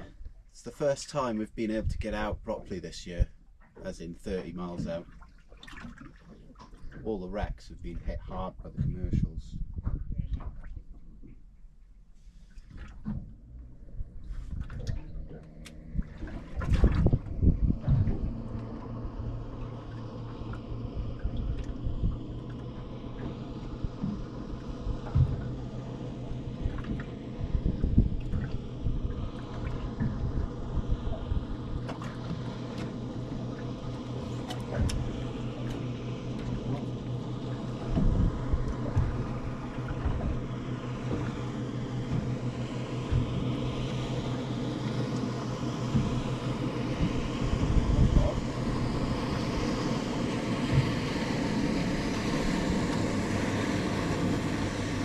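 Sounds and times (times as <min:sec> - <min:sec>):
another boat engine: 0:00.0 - 0:11.3, 0:12.2 - 0:55.0
motorboat engine idling: 0:00.0 - 0:55.0
irregular low thumps: 0:07.8 - 0:11.0, 0:13.2 - 0:31.8, 0:37.6 - 0:41.4, 0:47.0 - 0:49.5.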